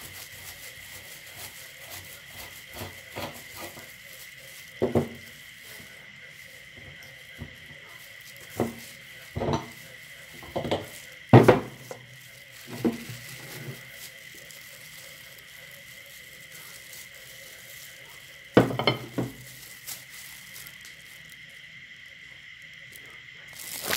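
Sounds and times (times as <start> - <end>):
glass dish clinking on wood: 9.4 - 9.8, 18.6 - 19.3.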